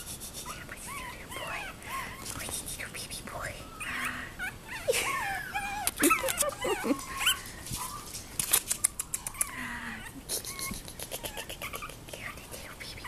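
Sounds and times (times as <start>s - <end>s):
puppies squeaking and whining: 0.0s - 2.7s, 3.4s - 12.4s
puppies scrambling on blanket: 5.1s - 9.6s.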